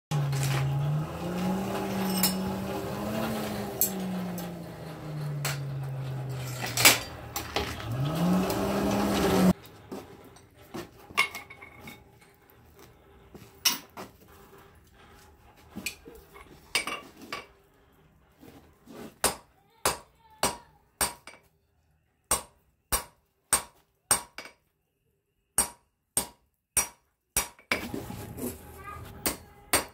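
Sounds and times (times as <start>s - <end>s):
hand-cranked blower whining: 0.1s - 10.3s
metal clinks: 1.9s - 2.8s, 3.8s - 7.6s.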